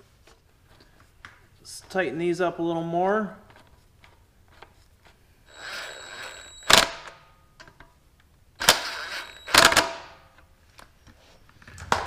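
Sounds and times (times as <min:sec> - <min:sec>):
cordless drill running: 0:05.5 - 0:07.1, 0:08.6 - 0:10.1
drill sharp click: 0:08.6 - 0:10.1.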